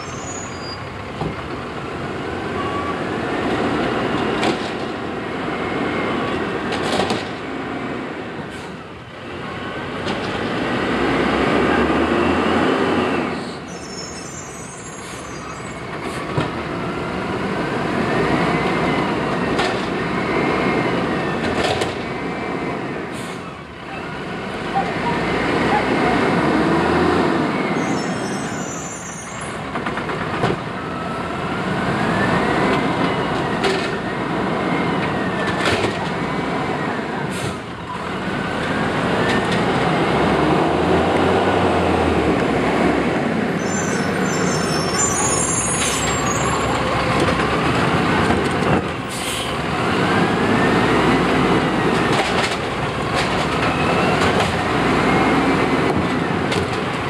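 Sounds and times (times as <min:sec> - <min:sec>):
brakes squealing: 0:11.8 - 0:16.4, 0:27.4 - 0:29.6, 0:43.6 - 0:47.6
air brake hisses: 0:49.1 - 0:49.6.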